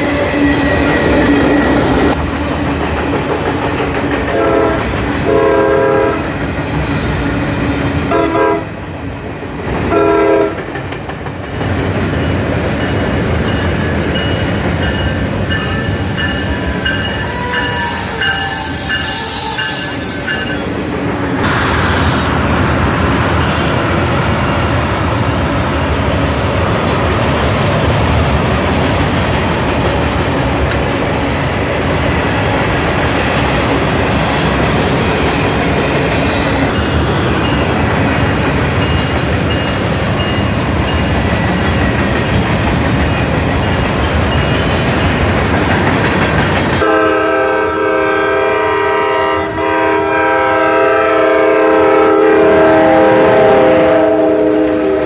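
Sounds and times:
freight train wheels rumbling: 0.0 - 55.0
train air horn blast: 4.3 - 6.3, 8.1 - 8.8, 9.9 - 10.6, 17.2 - 20.6, 46.8 - 55.0.

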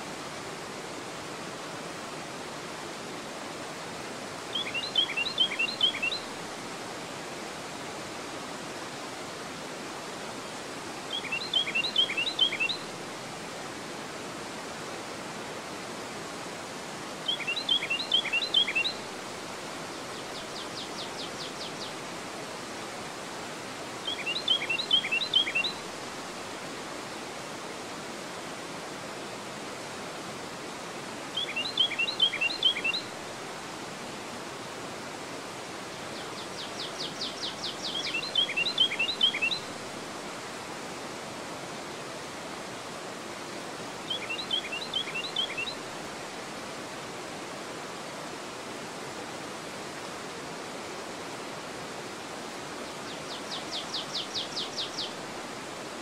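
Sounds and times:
water rushing over dam spillway: 0.0 - 56.0
songbird singing: 4.5 - 6.4, 11.1 - 12.9, 17.2 - 19.1, 19.9 - 22.0, 24.0 - 25.9, 31.3 - 33.1, 36.1 - 39.8, 44.0 - 45.8, 53.0 - 55.2.

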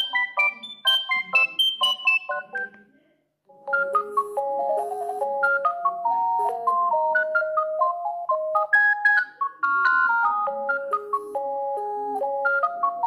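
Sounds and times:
mobile phone ringtones: 0.0 - 2.7, 3.5 - 13.0.

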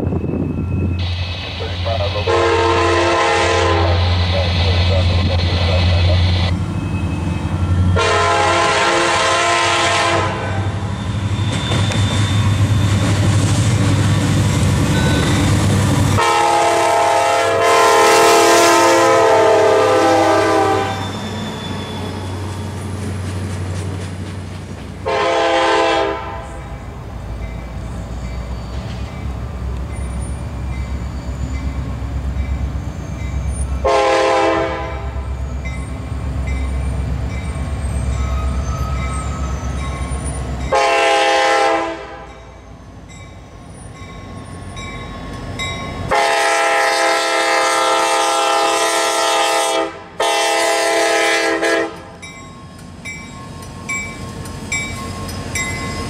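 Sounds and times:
locomotive engine rumble: 0.0 - 17.4, 18.6 - 41.2
locomotive air horn blasts: 2.1 - 4.3, 7.9 - 10.8, 16.2 - 21.2, 25.0 - 26.6, 33.8 - 35.2, 40.7 - 42.4, 46.1 - 52.1.

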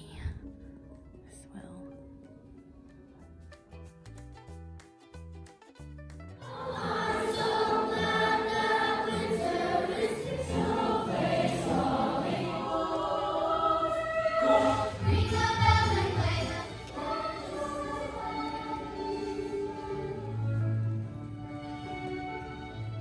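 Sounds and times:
children's choir singing: 6.5 - 21.2.

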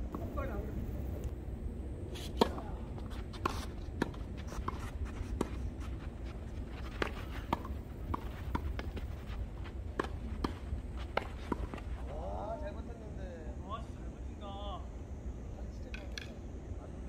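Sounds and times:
tennis ball bouncing: 3.4 - 5.7, 6.8 - 9.2, 9.9 - 11.8
rackets striking tennis ball: 6.8 - 12.0.

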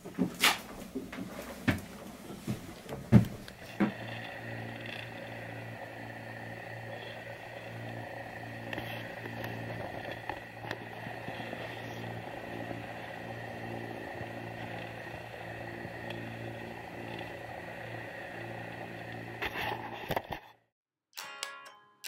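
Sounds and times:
boat engine drone: 3.2 - 20.2
faint high whine: 3.5 - 20.2.

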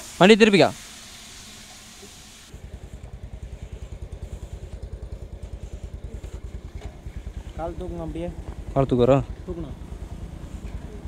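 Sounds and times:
motorcycle engine idling: 2.5 - 11.0.

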